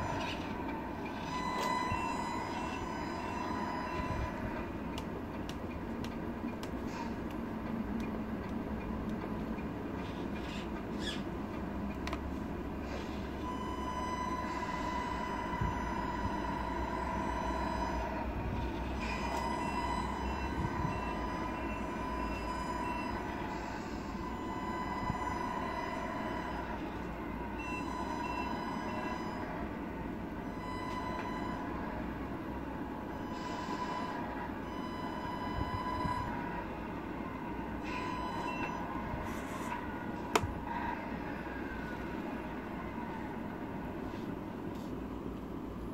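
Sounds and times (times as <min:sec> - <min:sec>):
reversing alarm beeps: 0:00.0 - 0:04.7, 0:13.4 - 0:29.7, 0:30.4 - 0:32.3, 0:32.9 - 0:39.8
toy truck motor rumble and whine: 0:00.0 - 0:04.8, 0:12.8 - 0:29.7
toy truck mechanical hum: 0:00.0 - 0:43.4.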